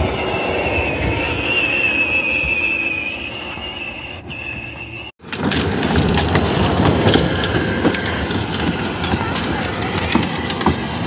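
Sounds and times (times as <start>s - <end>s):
toy car motor whining: 0.0s - 5.1s
plastic wheels rattling on concrete: 4.3s - 11.0s.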